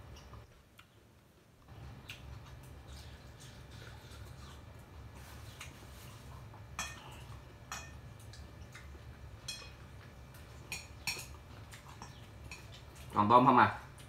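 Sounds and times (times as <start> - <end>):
utensils clinking against glass bowl: 6.8 - 8.0, 10.7 - 13.0.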